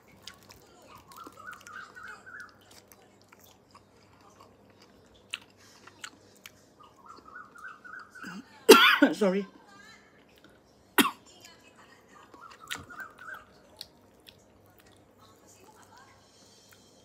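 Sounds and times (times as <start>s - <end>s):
person chewing fruit: 0.0s - 7.6s, 12.3s - 15.3s, 16.6s - 16.9s.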